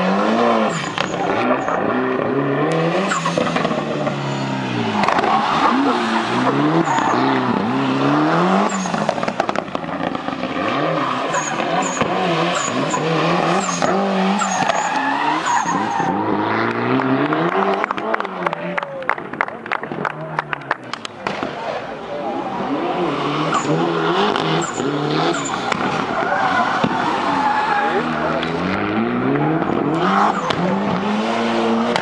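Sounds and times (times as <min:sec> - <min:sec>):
tyres squealing on tarmac: 0:00.0 - 0:09.3, 0:10.0 - 0:16.4, 0:22.2 - 0:31.6
car engine revving: 0:00.0 - 0:32.0.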